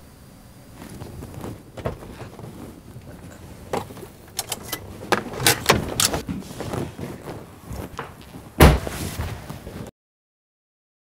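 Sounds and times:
sharp clicks and rattles: 1.8s - 6.2s.

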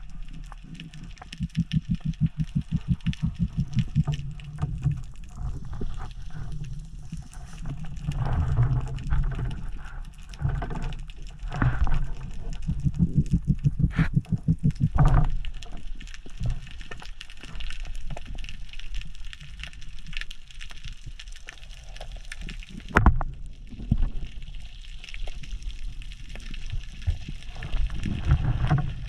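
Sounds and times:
underwater clicks and crackles: 0.0s - 29.0s
muffled underwater noise: 11.6s - 15.7s.

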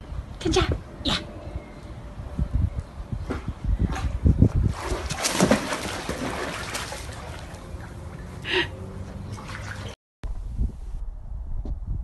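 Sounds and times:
dog splashing into pool: 4.7s - 8.4s, 9.3s - 10.0s
water sloshing: 4.7s - 10.0s.

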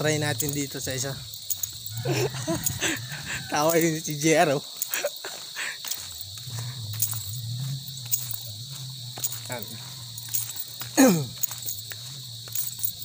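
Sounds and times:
insects chorus: 0.0s - 13.0s
low wavering drone: 6.3s - 10.8s.

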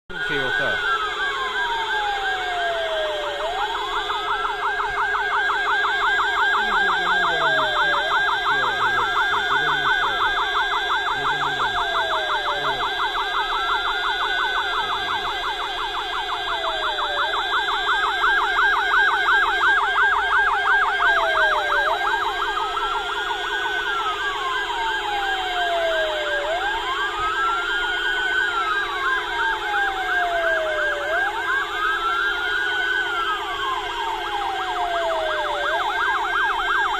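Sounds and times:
rapid warbling siren: 0.1s - 36.9s
siren wailing: 0.1s - 36.9s
steady blaring siren tones: 0.1s - 36.9s.

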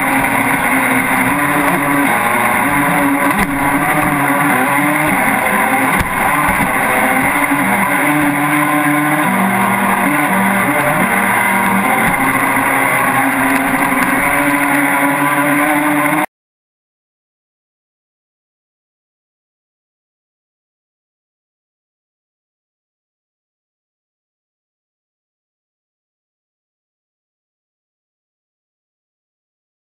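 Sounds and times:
water rushing against hull: 0.0s - 16.2s
model boat motor running: 0.0s - 16.3s.

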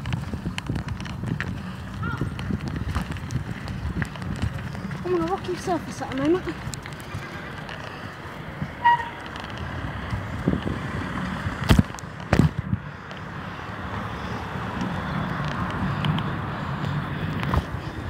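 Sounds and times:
bicycle knocking on jolts: 0.0s - 12.8s
bicycle tyre noise on rocky ground: 0.0s - 18.0s
bicycle squeak: 8.7s - 9.4s.

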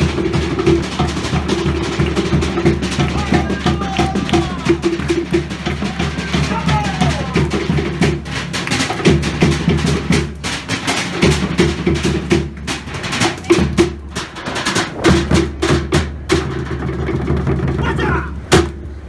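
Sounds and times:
drums beating fast rhythm: 0.0s - 18.8s
sharp wooden knocks: 18.5s - 18.8s.

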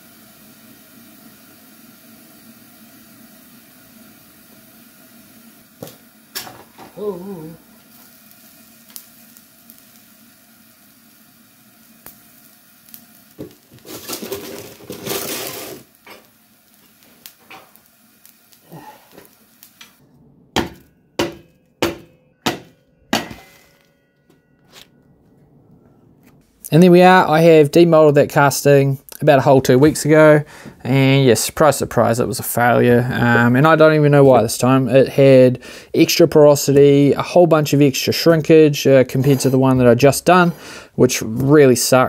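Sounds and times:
steady hiss: 0.0s - 24.0s, 26.4s - 42.0s
hammer blows: 19.9s - 26.5s
metal clinks and scraping: 20.8s - 25.5s.

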